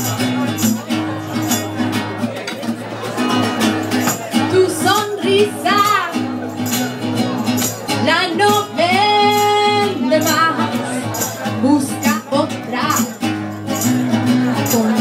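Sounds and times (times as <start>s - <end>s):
acoustic guitar: 0.0s - 15.0s
person singing: 8.0s - 13.2s, 14.3s - 15.0s.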